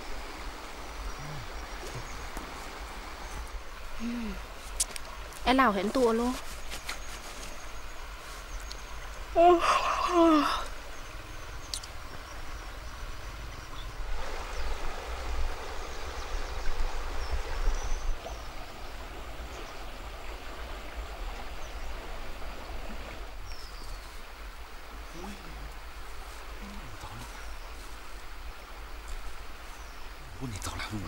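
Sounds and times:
river flowing: 0.0s - 31.0s
person yawning: 4.0s - 4.4s, 9.4s - 10.7s.

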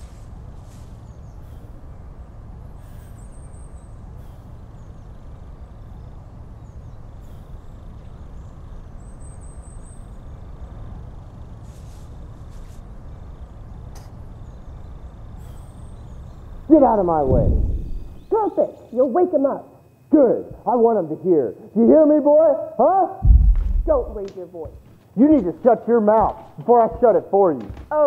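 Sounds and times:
low outdoor ambient rumble: 0.0s - 28.0s.

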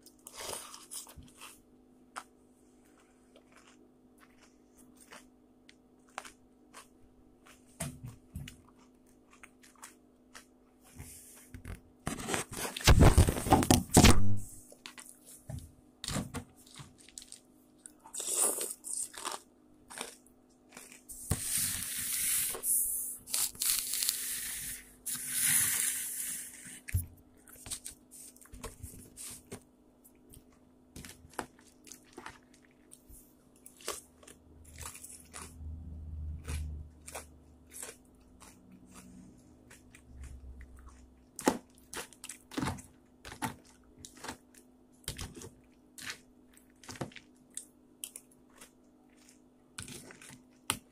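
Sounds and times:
rustling and crinkling: 7.5s - 18.0s.

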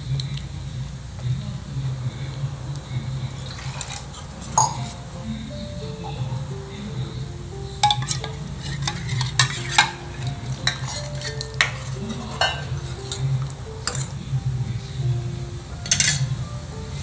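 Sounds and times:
soft background music: 0.0s - 17.0s
ladle scraping in steel pan: 7.8s - 14.2s.

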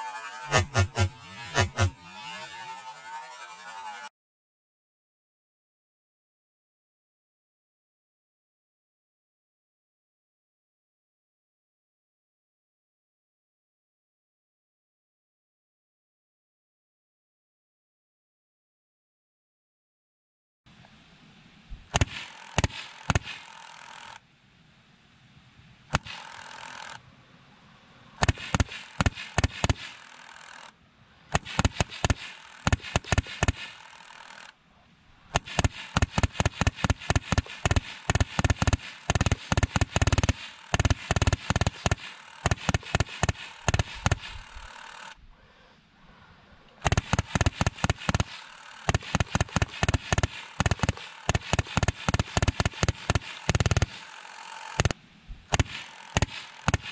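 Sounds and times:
automatic gunfire bursts: 22.0s - 24.1s, 28.2s - 30.6s, 31.3s - 33.8s, 35.3s - 45.2s, 46.8s - 56.9s.

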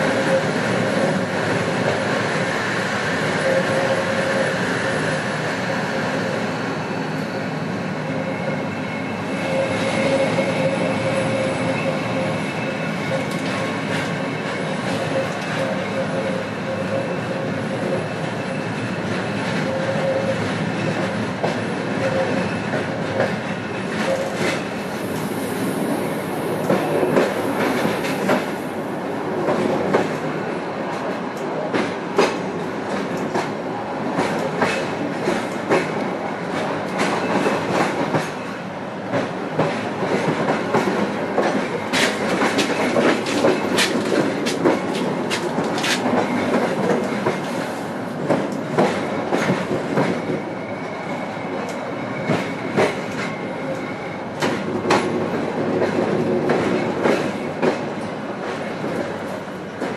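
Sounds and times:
train rumble: 0.0s - 59.9s
train wheels clattering over joints: 39.1s - 47.6s.

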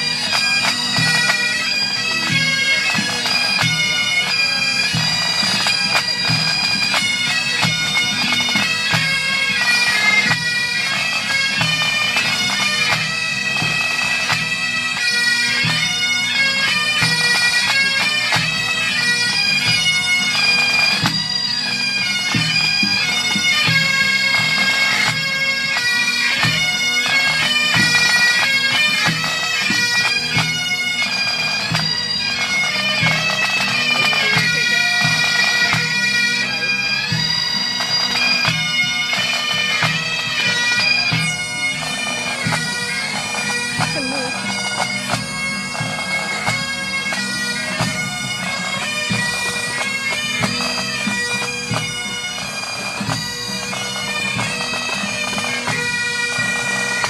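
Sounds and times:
bagpipe melody with drones: 0.0s - 57.0s
drums beating time: 43.7s - 47.0s.

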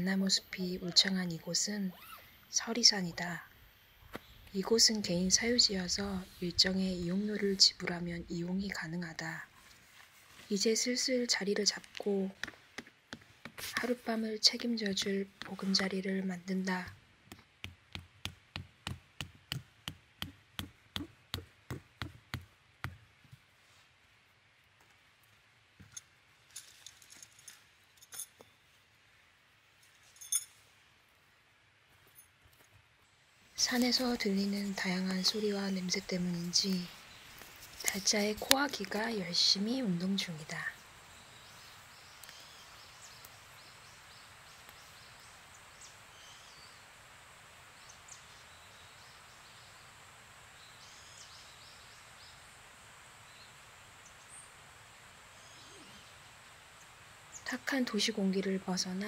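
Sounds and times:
faint steady hiss: 0.0s - 59.0s
metal tent ring and stake clinking: 25.8s - 28.5s, 29.8s - 30.6s
small birds chirping: 33.6s - 46.9s, 47.7s - 52.5s, 55.3s - 59.0s.

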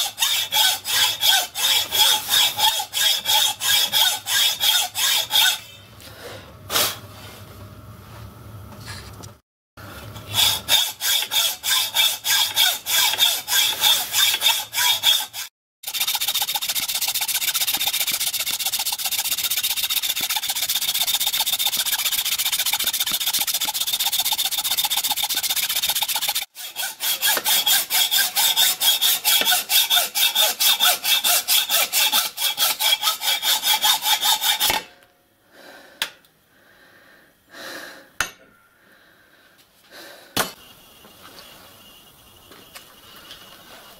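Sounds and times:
hacksaw cutting metal: 0.0s - 5.8s, 10.3s - 34.9s.

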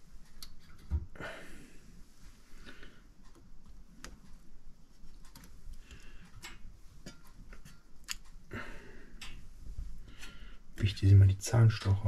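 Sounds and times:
hands clicking and rustling: 3.2s - 8.5s.

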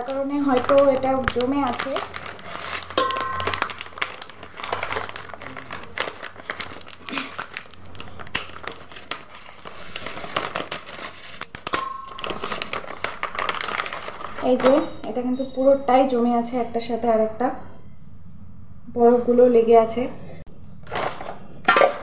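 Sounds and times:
scissors cutting plastic: 0.0s - 14.7s
plastic packet crinkling: 0.0s - 15.0s.

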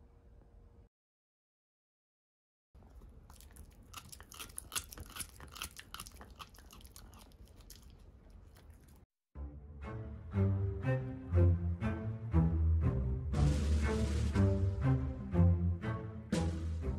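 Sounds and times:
dog gnawing an antler: 2.8s - 9.0s.

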